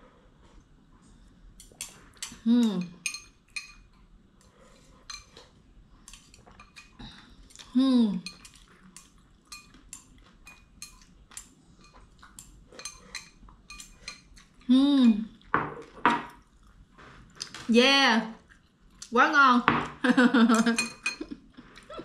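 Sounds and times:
utensils clinking against bowl: 0:01.8 - 0:03.9, 0:05.0 - 0:05.4, 0:08.2 - 0:11.1, 0:11.8 - 0:14.6, 0:20.5 - 0:21.3
person humming: 0:02.4 - 0:02.9.

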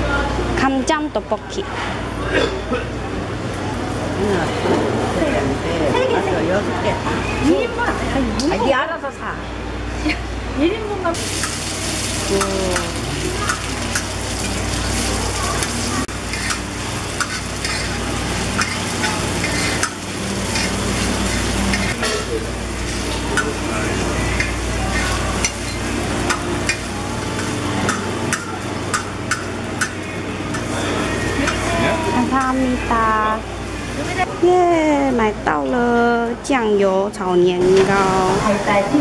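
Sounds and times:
rice cakes sizzling in oil: 0:11.2 - 0:32.5
metal spatula scraping pans: 0:15.6 - 0:23.6.

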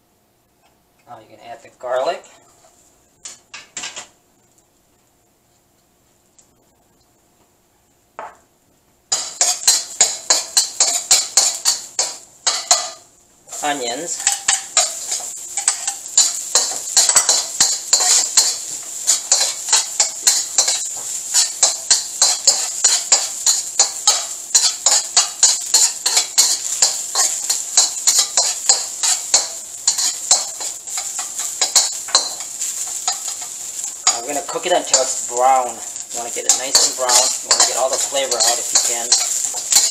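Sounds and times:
frying sizzle: 0:01.1 - 0:07.4, 0:08.2 - 0:39.9
metal spatula scraping a wok: 0:09.1 - 0:39.9.

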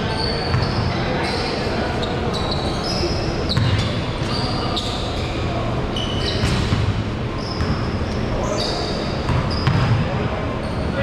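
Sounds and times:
sneaker squeaks on floor: 0:00.0 - 0:11.0
basketballs bouncing on hardwood: 0:03.6 - 0:03.8, 0:09.3 - 0:10.0.

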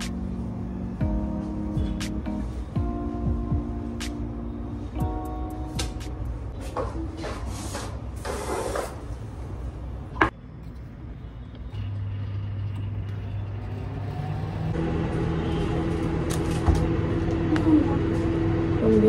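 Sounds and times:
microwave oven humming: 0:14.8 - 0:19.0.

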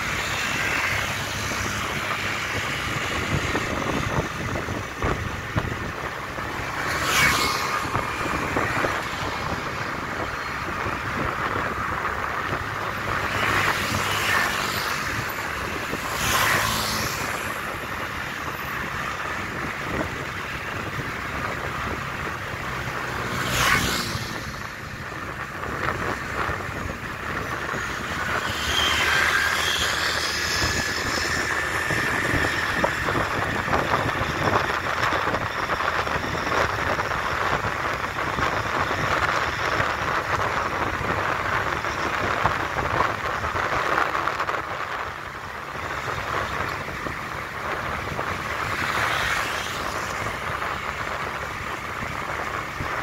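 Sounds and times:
city traffic noise: 0:00.0 - 0:53.0
vehicles passing: 0:00.0 - 0:53.0
wind on microphone: 0:00.0 - 0:53.0.

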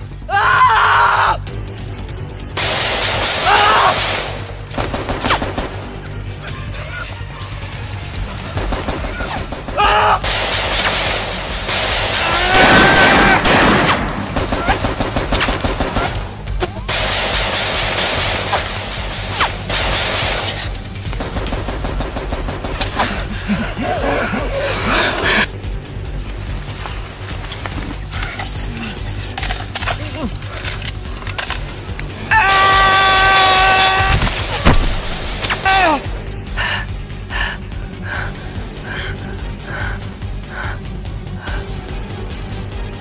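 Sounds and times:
action film music score: 0:00.0 - 0:43.0
rapid gunfire: 0:02.6 - 0:06.1, 0:08.5 - 0:23.4
automatic rifle fire: 0:08.6 - 0:16.1
man crying out: 0:35.6 - 0:36.1.

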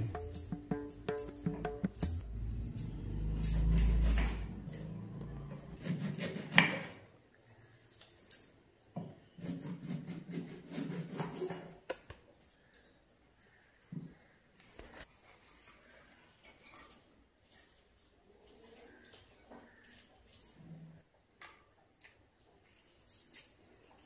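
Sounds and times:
light clinking and rubbing: 0:00.0 - 0:05.8, 0:07.4 - 0:08.9
low rumble: 0:02.0 - 0:05.8.

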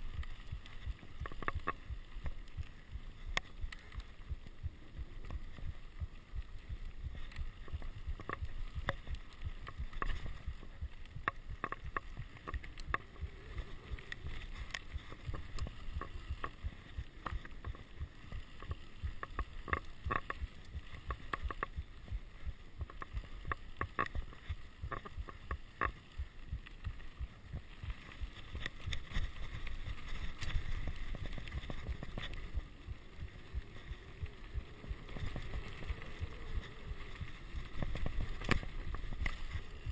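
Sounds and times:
wind and tyre rumble: 0:00.0 - 0:39.9
bike clicks and rattles: 0:22.8 - 0:39.9.

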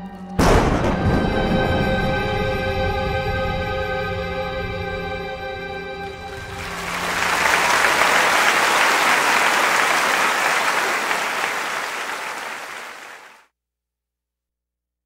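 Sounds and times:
music: 0:00.0 - 0:11.1
audience applauding: 0:06.1 - 0:13.4.

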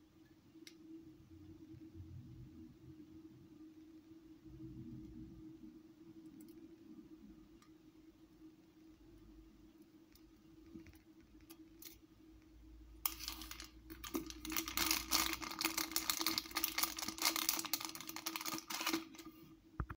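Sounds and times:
faint steady hum: 0:00.0 - 0:20.0
plastic packaging crinkling: 0:13.0 - 0:19.4.

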